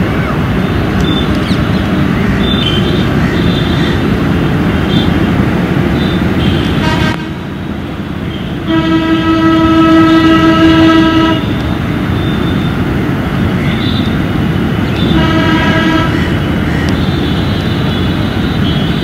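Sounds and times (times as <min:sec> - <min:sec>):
rumbling background noise: 0:00.0 - 0:19.0
horn blasts: 0:06.0 - 0:07.5, 0:08.6 - 0:11.6, 0:15.0 - 0:18.1.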